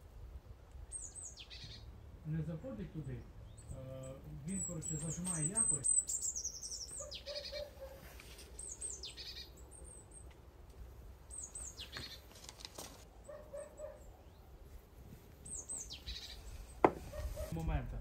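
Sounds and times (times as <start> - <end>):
high downward bird call: 0.9 - 2.0, 3.2 - 10.3, 15.4 - 17.6.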